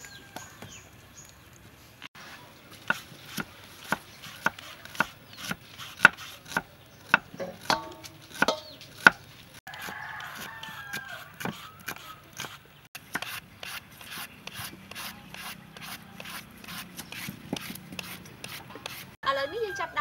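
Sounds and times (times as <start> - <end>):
knife chopping on wooden board: 2.8 - 9.2, 9.8 - 19.1
chickens calling: 8.3 - 12.9
rooster crowing: 9.7 - 12.3, 19.2 - 20.0.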